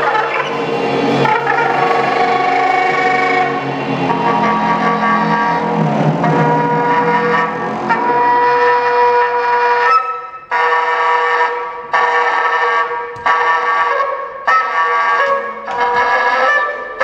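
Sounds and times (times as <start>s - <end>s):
soprano saxophone long notes: 0.0s - 12.5s.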